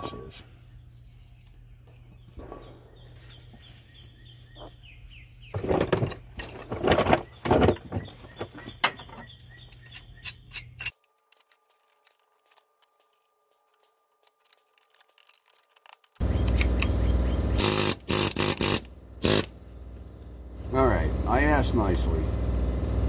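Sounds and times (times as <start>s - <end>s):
faint birds chirping: 0.0s - 11.0s, 15.2s - 17.8s
wrench clanking on metal: 8.8s - 11.0s.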